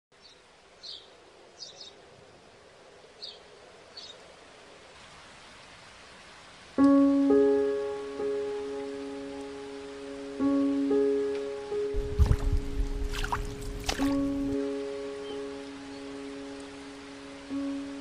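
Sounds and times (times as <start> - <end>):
faint steady hiss: 0.1 - 18.0
piano chord and notes: 6.8 - 18.0.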